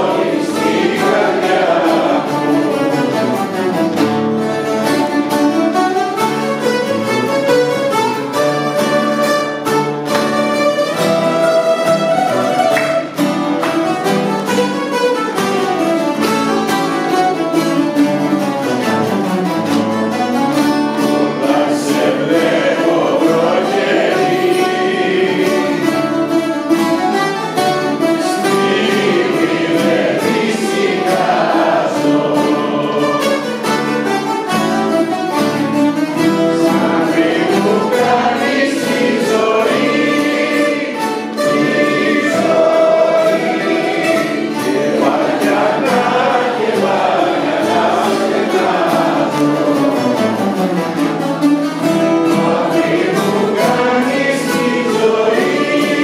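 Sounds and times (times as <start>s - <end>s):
group of voices singing: 0.0s - 4.0s, 21.0s - 26.7s, 28.0s - 34.0s, 36.2s - 50.5s, 51.9s - 56.0s
bouzouki ensemble playing: 0.0s - 56.0s.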